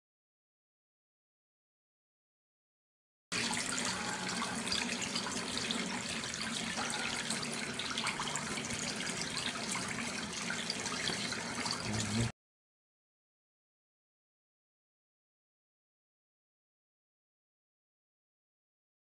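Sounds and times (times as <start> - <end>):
tap water splashing into basin: 3.4 - 12.3.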